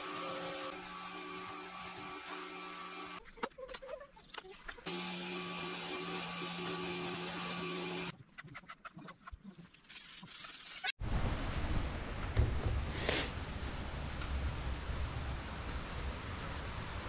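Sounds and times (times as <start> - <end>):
pressure washer running: 4.9 - 8.1.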